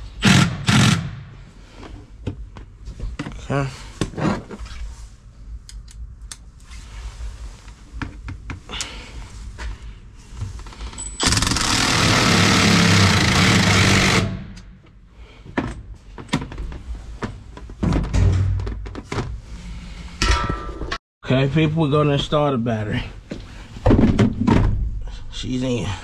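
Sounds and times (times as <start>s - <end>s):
cordless drill driving screw into metal: 11.2s - 14.4s.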